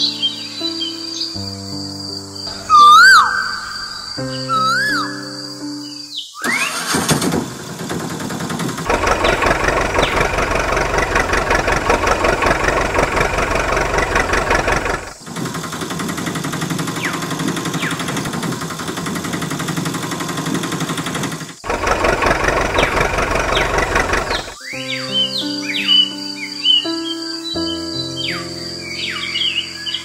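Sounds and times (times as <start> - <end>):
tractor engine running: 6.5 - 24.6.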